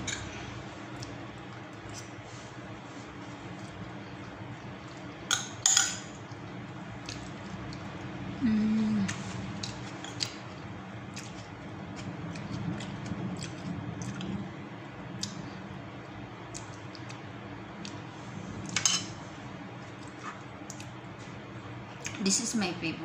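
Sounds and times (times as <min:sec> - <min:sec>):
steady low background hum: 0:00.0 - 0:23.0
wet chewing: 0:07.0 - 0:07.9, 0:09.1 - 0:14.4, 0:16.5 - 0:18.0, 0:19.8 - 0:21.0.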